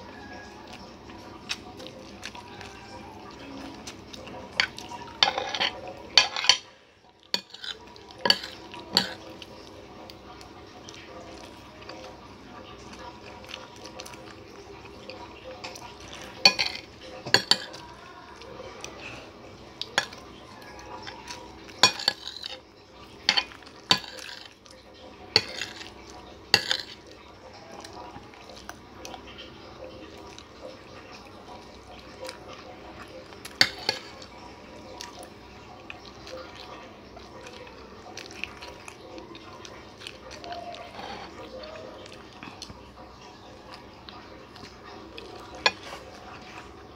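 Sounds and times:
cutlery clinking on a plate: 0:04.5 - 0:06.7, 0:07.4 - 0:09.4, 0:15.6 - 0:17.9, 0:19.9 - 0:20.2, 0:21.0 - 0:22.6, 0:23.2 - 0:24.6, 0:25.3 - 0:27.1, 0:33.5 - 0:34.3, 0:45.4 - 0:46.2.

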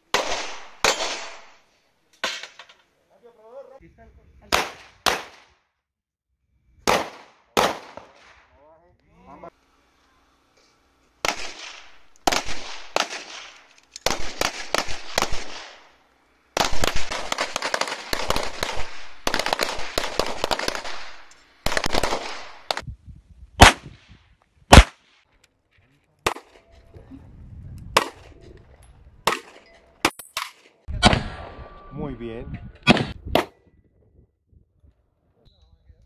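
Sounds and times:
pistol shots echoing: 0:04.5 - 0:05.5, 0:06.9 - 0:08.4.

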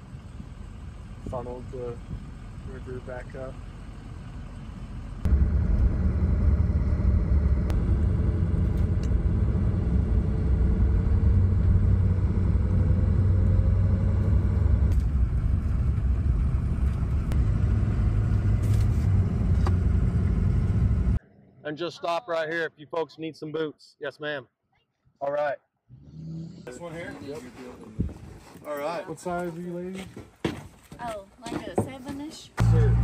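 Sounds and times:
vehicle road and engine rumble: 0:00.0 - 0:21.2, 0:26.0 - 0:33.0.

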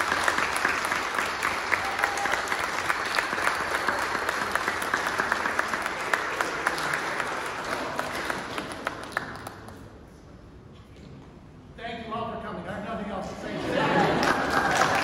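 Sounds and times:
crowd applauding: 0:00.0 - 0:09.9, 0:13.8 - 0:15.0.

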